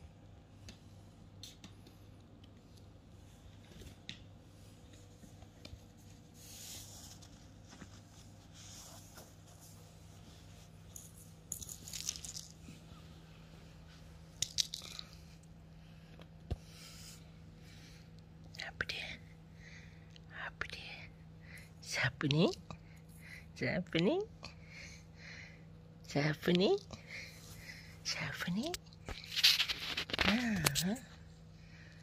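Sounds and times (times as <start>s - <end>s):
faint steady hum: 0.0s - 32.0s
kitten digging in cat litter: 29.1s - 30.9s.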